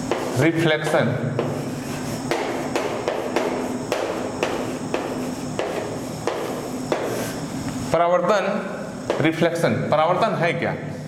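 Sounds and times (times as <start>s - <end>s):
chalk tapping on chalkboard: 0.0s - 7.4s, 9.1s - 9.4s
steady hum: 0.0s - 11.0s.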